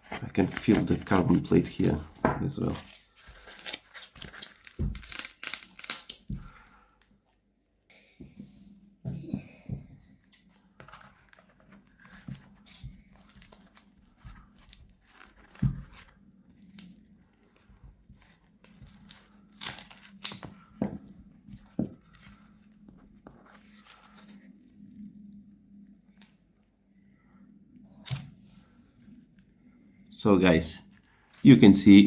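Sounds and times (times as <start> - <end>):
foam and fabric ripping: 3.4 - 6.1.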